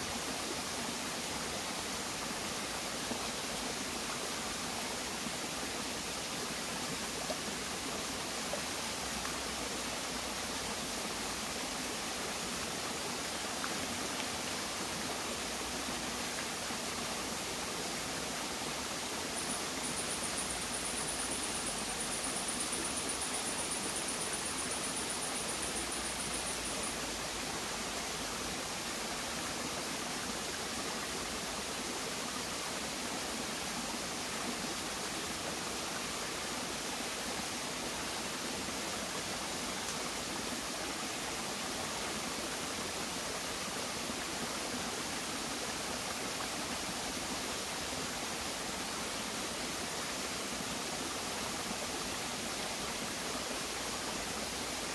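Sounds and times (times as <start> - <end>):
stream running over rocks: 0.0 - 54.9.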